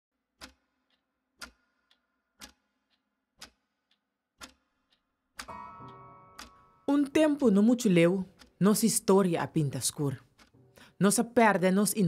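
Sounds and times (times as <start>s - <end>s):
clock ticking: 0.4s - 12.0s.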